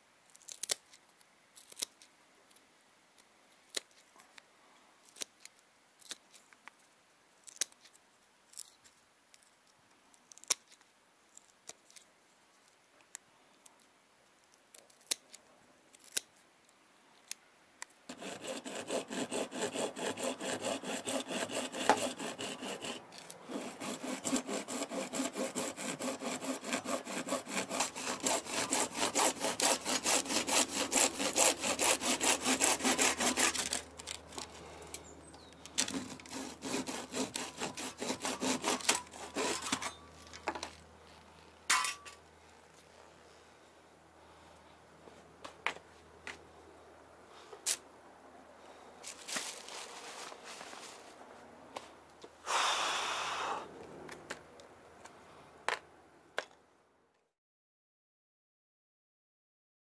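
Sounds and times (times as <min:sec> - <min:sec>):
hand tool scraping strokes: 0:18.1 - 0:42.2, 0:49.0 - 0:51.2.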